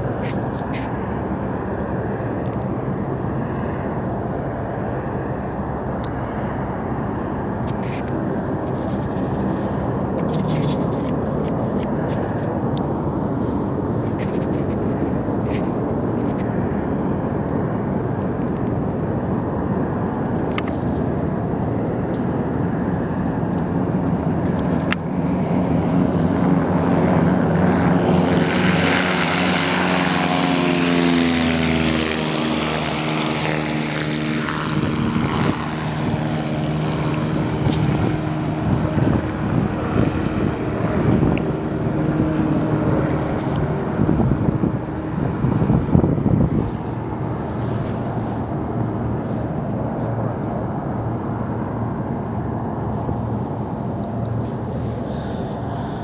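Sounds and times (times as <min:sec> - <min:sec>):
propeller engines droning: 0:00.0 - 0:56.0.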